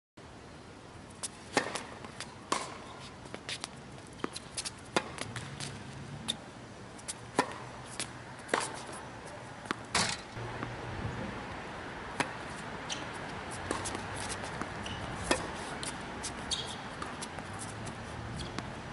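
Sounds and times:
shoes scuffing on court: 0:01.2 - 0:06.4, 0:07.0 - 0:09.8, 0:12.2 - 0:18.7
tennis ball bouncing: 0:01.2 - 0:06.4, 0:07.0 - 0:10.8, 0:12.1 - 0:18.8
racquets striking tennis ball: 0:01.5 - 0:06.4, 0:07.0 - 0:10.8, 0:12.1 - 0:18.8.

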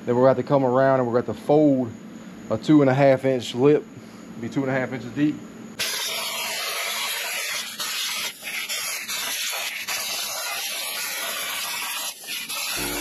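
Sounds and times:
plasma cutter hissing: 0:05.8 - 0:13.0.

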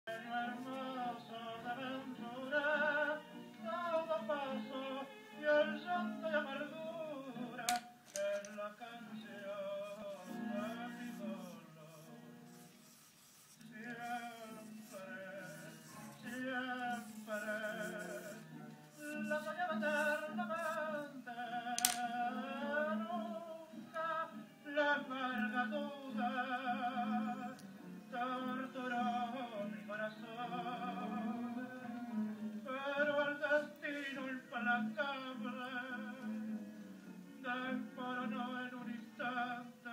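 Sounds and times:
person singing with vibrato: 0:00.1 - 0:31.9
sharp click: 0:07.7 - 0:08.6, 0:21.8 - 0:22.1.

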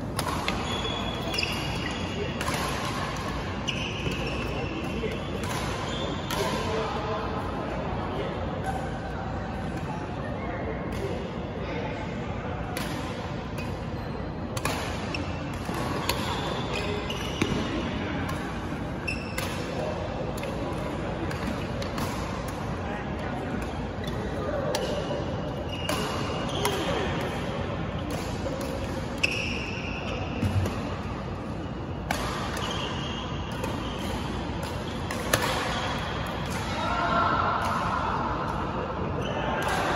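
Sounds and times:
racket hitting shuttlecock: 0:00.0 - 0:06.7, 0:14.6 - 0:22.7, 0:24.6 - 0:25.1, 0:32.0 - 0:36.8
sports hall background noise: 0:00.0 - 0:39.9
shoes squeaking on court: 0:00.4 - 0:02.5, 0:03.6 - 0:06.3, 0:15.0 - 0:17.9, 0:25.6 - 0:27.0.

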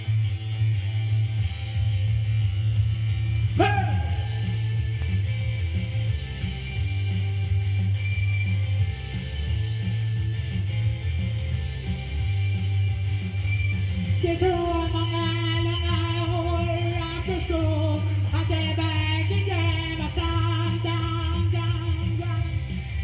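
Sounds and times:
bass and beat: 0:00.0 - 0:23.0
electric guitar: 0:00.0 - 0:23.0
man singing: 0:03.6 - 0:04.6, 0:14.2 - 0:22.8.

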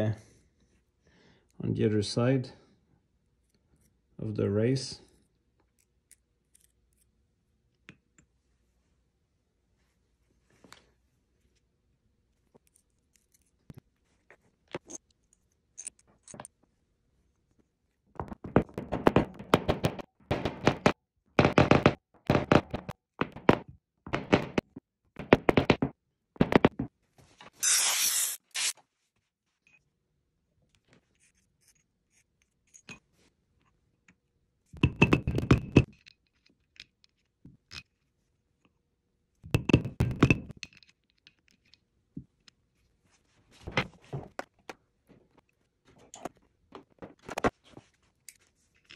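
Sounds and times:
rubber mallet knocking on metal: 0:18.2 - 0:26.9.

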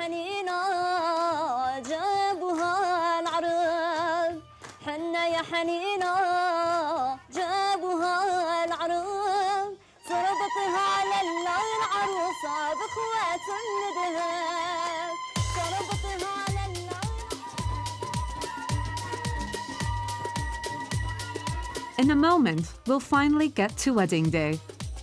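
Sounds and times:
woman singing ornamented melody: 0:07.5 - 0:18.0.

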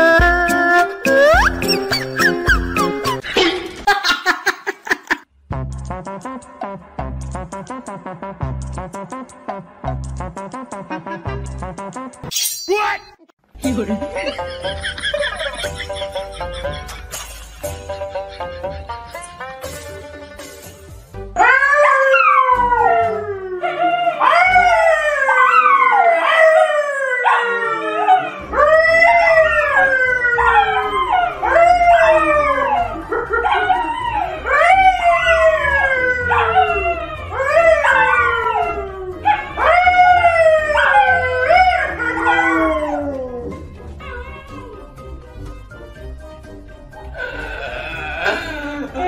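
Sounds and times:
dogs howling: 0:21.4 - 0:44.9
man howling: 0:47.2 - 0:49.0.

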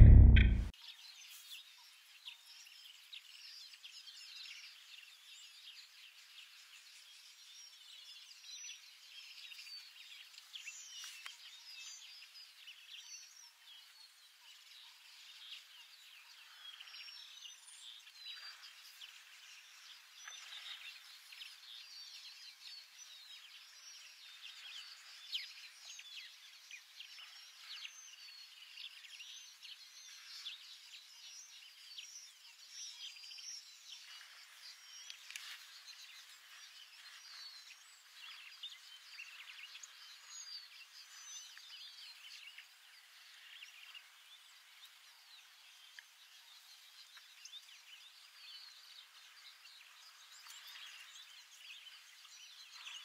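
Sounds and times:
birds chirping: 0:00.0 - 0:00.7
sharp tick: 0:00.0 - 0:00.7.

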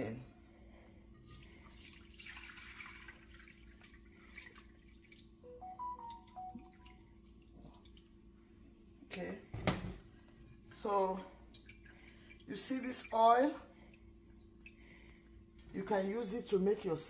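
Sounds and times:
oil trickling and dripping: 0:01.0 - 0:08.3, 0:11.2 - 0:15.8.

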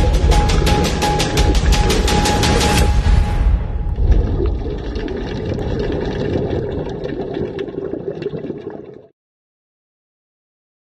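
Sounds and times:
underwater bubbling: 0:03.9 - 0:09.1.

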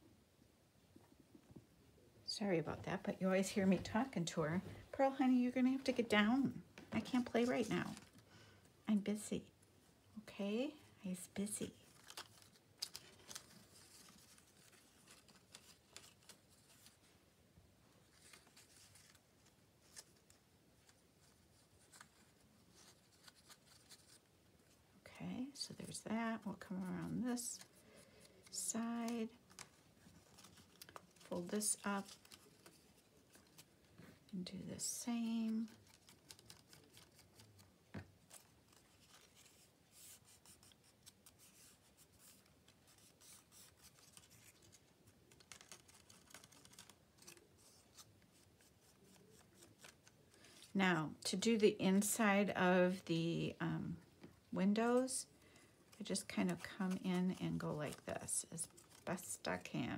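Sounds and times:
paper scratching and ticking: 0:11.8 - 0:17.1, 0:18.1 - 0:24.3, 0:25.4 - 0:33.8, 0:34.8 - 0:50.7, 0:55.9 - 0:59.7.

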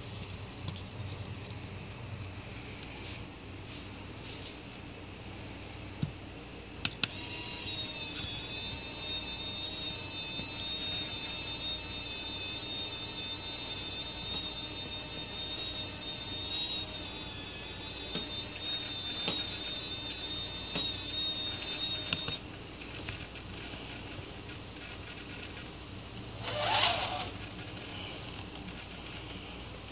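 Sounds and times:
electric winch whining: 0:07.1 - 0:22.4, 0:25.4 - 0:27.5.

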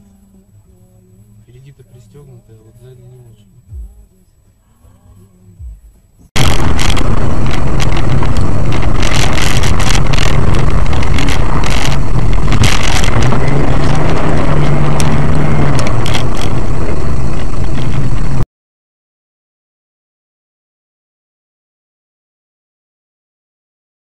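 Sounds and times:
loud distorted vehicle noise: 0:06.3 - 0:18.5.

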